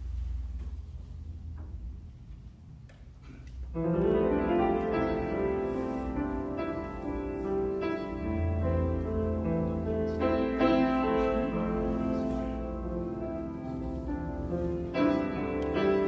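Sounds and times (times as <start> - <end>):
keyboard playing sustained chords: 3.8 - 16.0.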